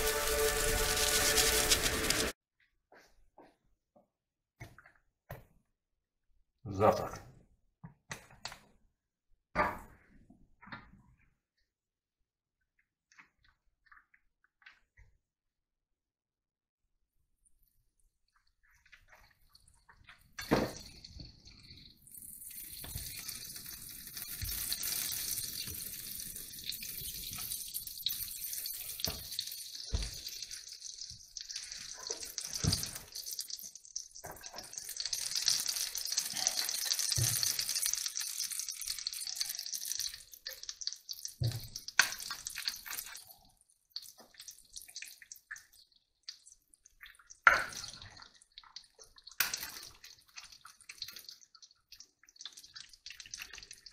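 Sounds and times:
butter sizzling in a frying pan: 0.0 - 2.4, 22.0 - 43.3.

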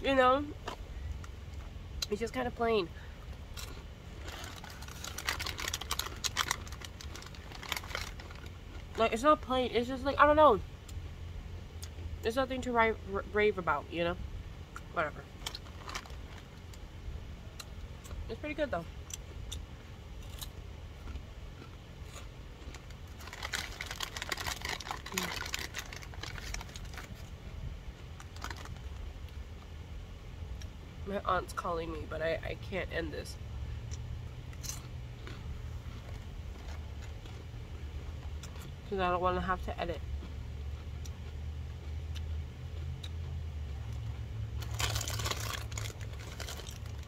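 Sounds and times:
steady low hum: 0.0 - 47.0
crunching of chips: 3.4 - 9.0, 14.8 - 16.8, 20.2 - 27.4, 28.0 - 29.4, 33.9 - 38.8, 43.9 - 47.0
snack packaging crinkling: 3.6 - 9.0, 15.4 - 16.8, 22.1 - 27.3, 28.2 - 29.0, 44.6 - 47.0.

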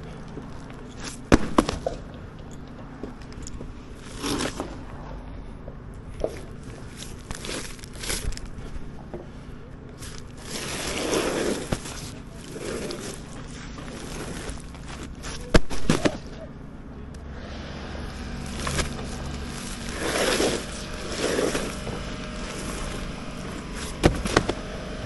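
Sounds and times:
steady low rumble: 0.0 - 25.0
sharp bangs: 1.2 - 2.1.

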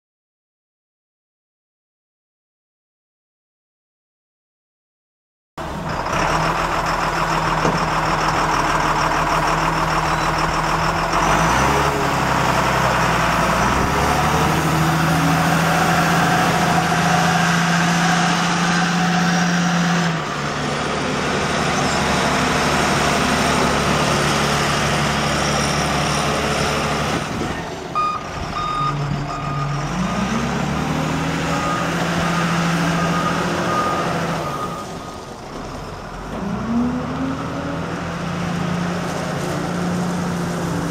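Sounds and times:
wheel loader diesel engine: 5.6 - 40.9
backup alarm beeping: 28.0 - 29.8.

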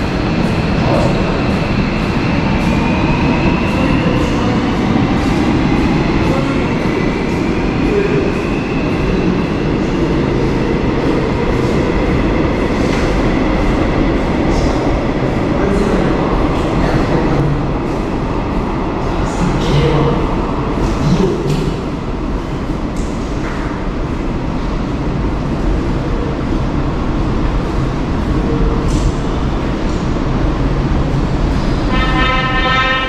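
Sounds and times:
train wheels rumbling on rail: 0.0 - 33.0.

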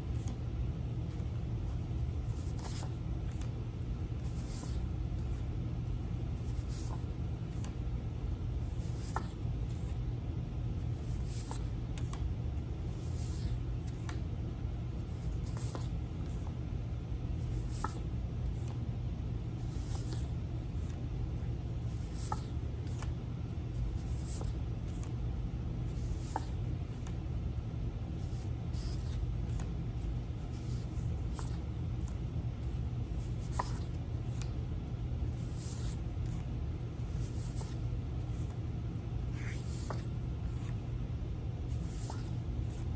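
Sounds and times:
paper cards swishing: 0.0 - 5.6, 6.2 - 7.8, 11.0 - 12.2, 15.1 - 16.5, 19.6 - 21.0, 21.8 - 27.3, 27.9 - 34.6, 35.2 - 40.9, 41.6 - 42.9
steady low hum: 0.0 - 42.9.

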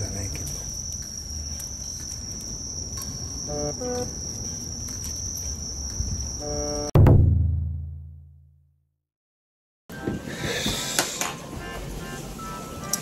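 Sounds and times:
high insect trill: 0.0 - 6.9.

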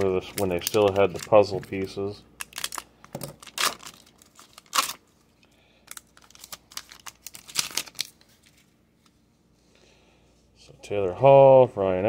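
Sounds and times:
foil wrapper crinkling and tearing: 0.0 - 8.7.

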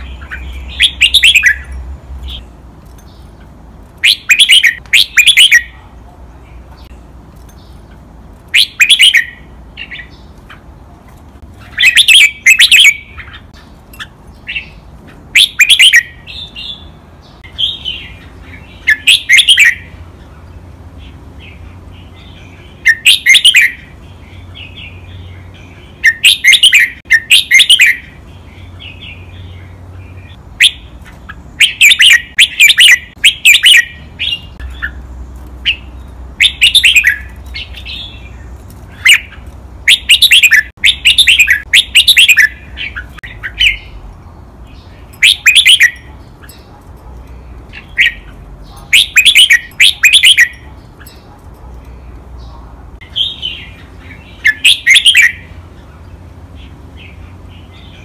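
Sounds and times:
bird chattering: 0.0 - 2.5, 3.1 - 5.9, 7.6 - 10.8, 11.5 - 20.0, 21.0 - 44.1, 44.7 - 55.9
bird singing quick notes: 47.3 - 51.3.

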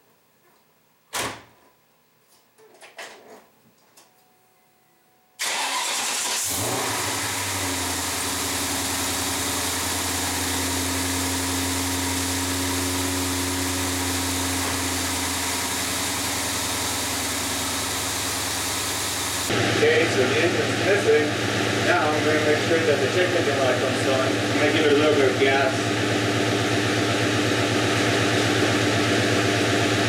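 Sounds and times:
car engine starting and idling: 5.4 - 30.0.

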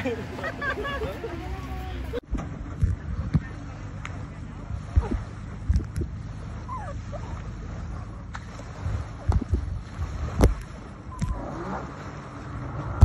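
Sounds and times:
jet ski engine idling: 0.0 - 13.0
wind buffeting microphone: 0.2 - 13.0.

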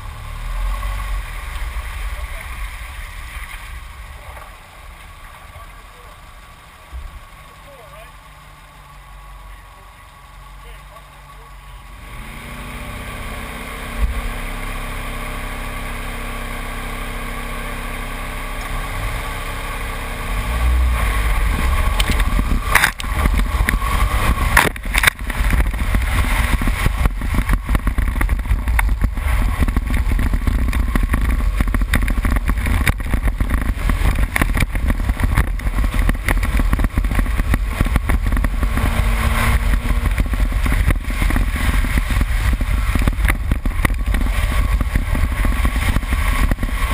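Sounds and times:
car engine revving: 0.0 - 46.9
stones rattling against car: 21.4 - 46.9.

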